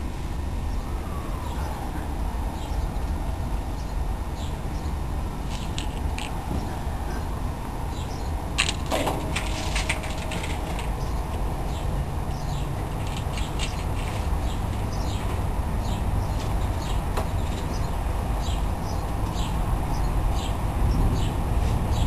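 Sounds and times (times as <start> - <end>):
small birds chirping: 0.7 - 8.9, 9.5 - 22.0.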